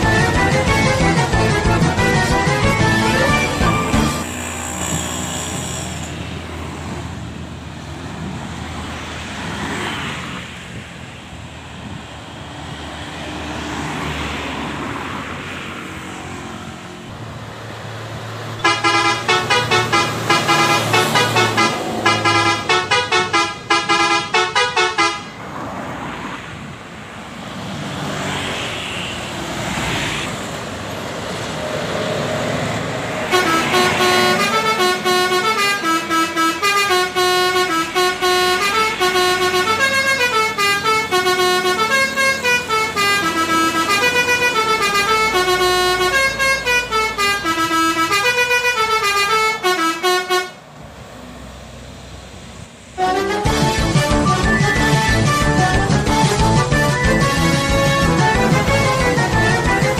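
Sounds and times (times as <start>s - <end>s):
musical air horn melody: 0.0s - 4.4s, 18.6s - 25.3s, 33.3s - 50.6s, 53.0s - 59.9s
bus passing: 0.0s - 59.9s.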